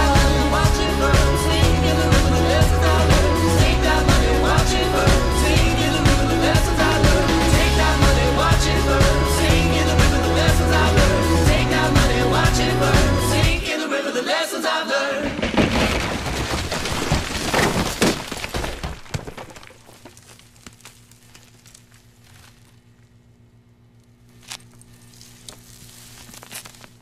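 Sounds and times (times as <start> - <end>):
faint low hum: 19.6 - 27.0.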